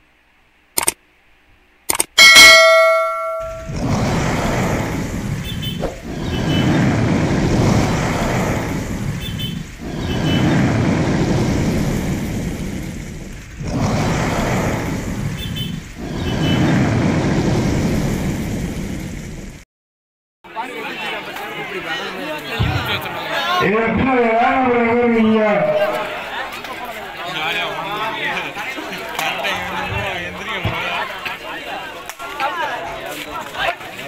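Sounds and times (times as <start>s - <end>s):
dense rushing roar: 2.4s - 19.6s.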